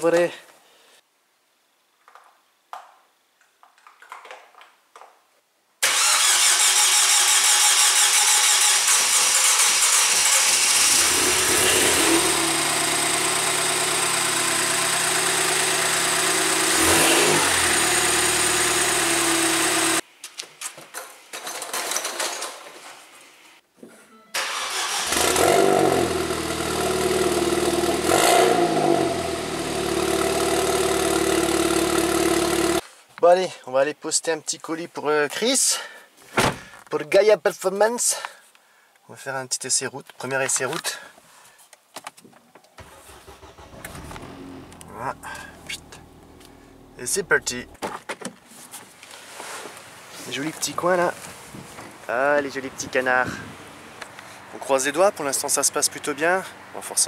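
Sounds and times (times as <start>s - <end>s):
car engine revving: 9.9s - 20.0s, 24.7s - 32.8s, 42.8s - 47.8s
turbo car engine idling: 29.3s - 32.8s, 42.8s - 47.8s.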